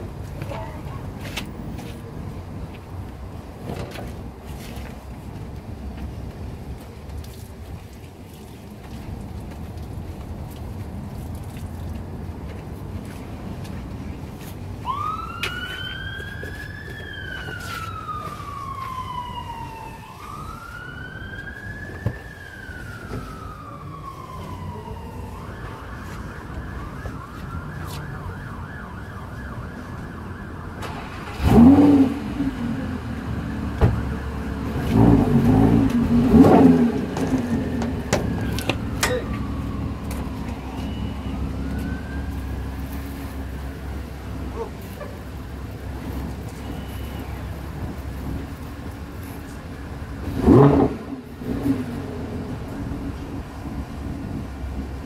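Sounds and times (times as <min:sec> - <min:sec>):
emergency siren wailing: 0:14.8 - 0:55.0.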